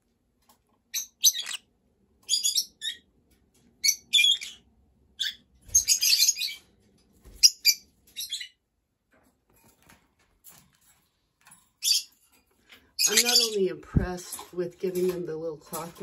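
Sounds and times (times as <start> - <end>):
parrot chirping and chattering: 0.8 - 6.8, 7.4 - 8.6, 11.7 - 13.6.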